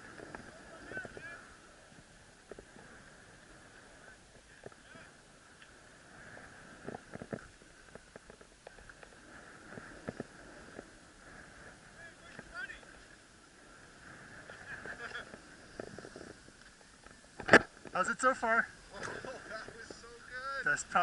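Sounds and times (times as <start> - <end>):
skis hissing over snow: 13.5 - 16.6.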